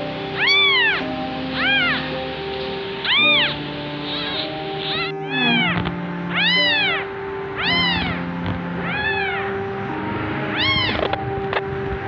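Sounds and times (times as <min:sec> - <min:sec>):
kitten meowing: 0:00.4 - 0:02.3, 0:03.0 - 0:09.8, 0:10.4 - 0:11.3.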